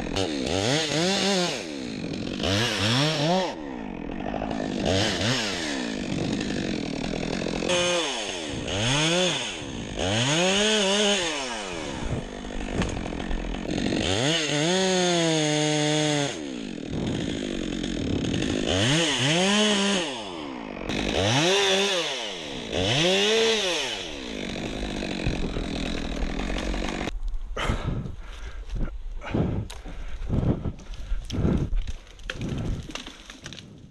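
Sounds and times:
chainsaw revving: 0:00.0 - 0:27.1.

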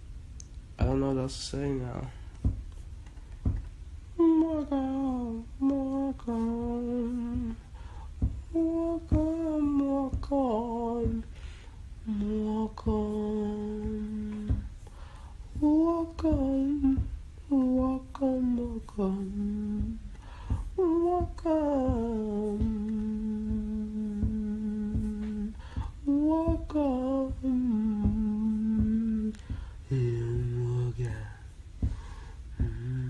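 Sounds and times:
man humming a slow melody: 0:04.1 - 0:07.6, 0:08.3 - 0:11.4, 0:12.0 - 0:14.8, 0:15.6 - 0:31.9, 0:32.5 - 0:33.0.

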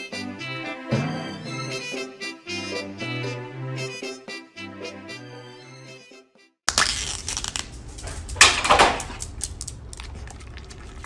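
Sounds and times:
foil lid peeled off cup: 0:06.7 - 0:08.3.

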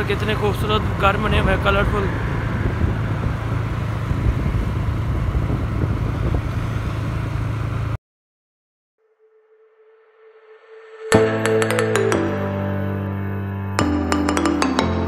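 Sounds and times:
wind rushing over microphone: 0:00.0 - 0:07.9
motorcycle engine hum: 0:00.0 - 0:08.0.

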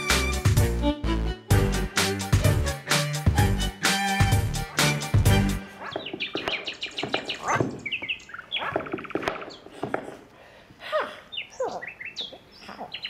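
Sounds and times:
bird trills: 0:05.8 - 0:09.7.

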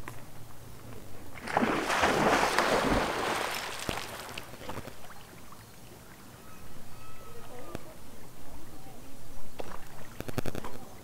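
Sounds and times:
water splashing: 0:01.4 - 0:05.6.

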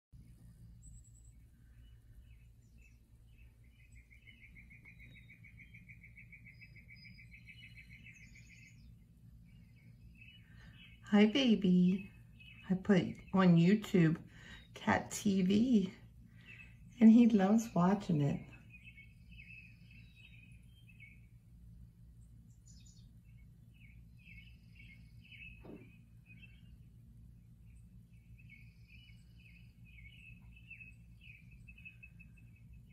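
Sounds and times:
steady low hum: 0:00.1 - 0:32.9
faint bird chirps: 0:00.2 - 0:21.4, 0:22.4 - 0:32.9
rapid bird trill: 0:00.8 - 0:13.4.

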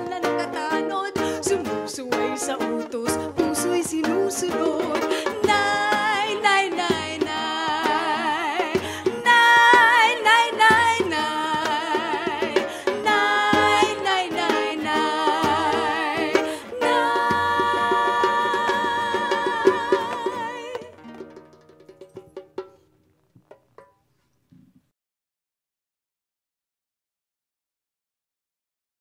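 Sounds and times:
woman singing with vibrato: 0:00.0 - 0:21.1
strummed strings: 0:00.0 - 0:24.0
light percussion: 0:00.0 - 0:24.8.

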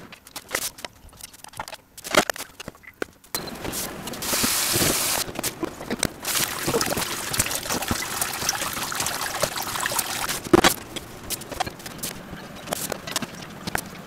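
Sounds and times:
tap running into metal bowl: 0:06.3 - 0:10.3.

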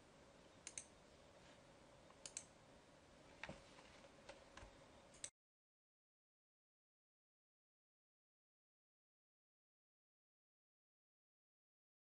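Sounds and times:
low steady hum: 0:00.0 - 0:05.3
computer mouse clicks: 0:00.6 - 0:00.9, 0:02.1 - 0:02.5, 0:04.6 - 0:05.3.

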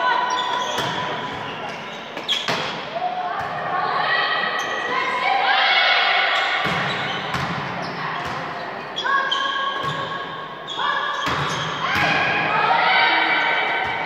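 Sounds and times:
girls shouting: 0:03.0 - 0:06.4, 0:11.8 - 0:13.9.

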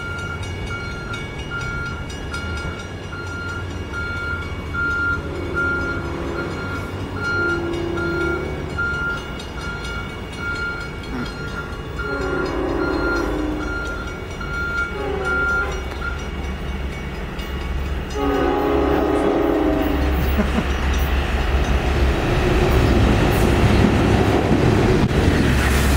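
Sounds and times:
crossing bell ringing: 0:00.0 - 0:25.2
train horn chord: 0:05.0 - 0:08.8, 0:12.0 - 0:14.1, 0:14.7 - 0:16.1, 0:18.1 - 0:20.4.

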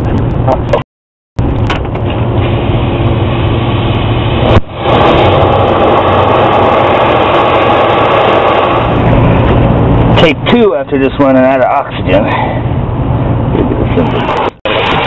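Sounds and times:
machinery humming: 0:01.4 - 0:11.2.

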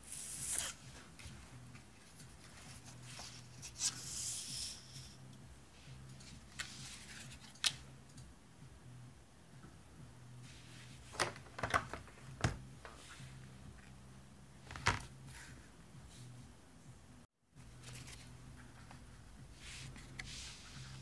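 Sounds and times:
paper cards rustling and sliding: 0:00.0 - 0:05.2, 0:06.2 - 0:07.8, 0:17.6 - 0:21.0.

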